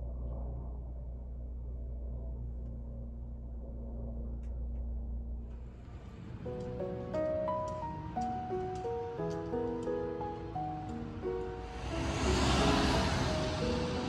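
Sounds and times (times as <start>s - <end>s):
faint hum: 0.0s - 14.0s
low outdoor rumble: 0.0s - 14.0s
faint clicks: 6.5s - 11.5s.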